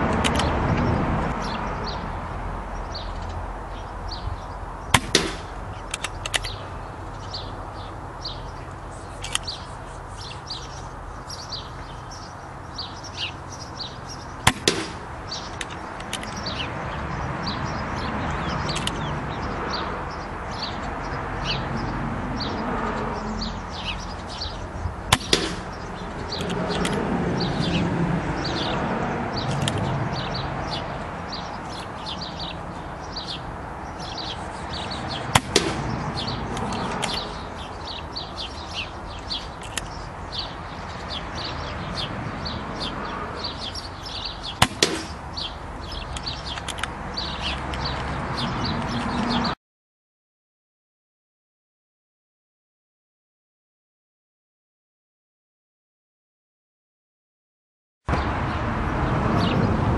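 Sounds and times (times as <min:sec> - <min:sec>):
small birds chirping: 0:00.0 - 0:49.6, 0:59.4 - 0:59.7
air rifle pellet cracks: 0:05.0 - 0:06.6.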